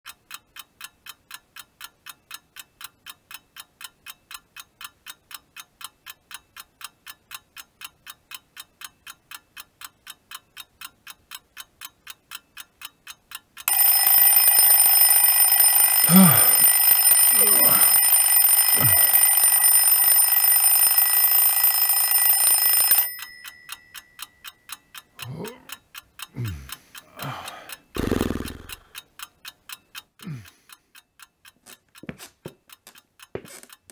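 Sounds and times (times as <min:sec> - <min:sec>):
alarm clock ticking: 0:00.1 - 0:33.9
alarm clock ringing: 0:13.7 - 0:24.8
man's low vocal sounds: 0:16.1 - 0:16.7, 0:17.3 - 0:17.9, 0:18.8 - 0:19.2, 0:25.2 - 0:25.7, 0:26.3 - 0:29.0.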